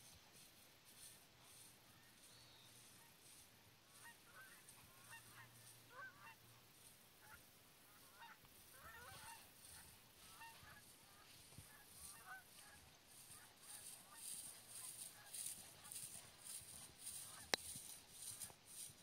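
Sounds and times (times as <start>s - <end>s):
faint gliding bird calls: 0.9s - 18.9s.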